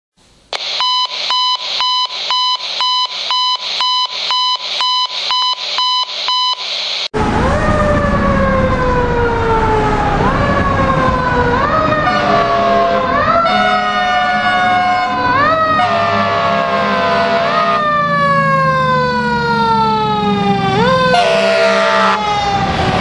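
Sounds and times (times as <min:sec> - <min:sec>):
pulsing alarm beeps: 0:00.6 - 0:06.8
truck engine and road noise: 0:07.1 - 0:23.0
fire engine siren wailing: 0:07.2 - 0:23.0.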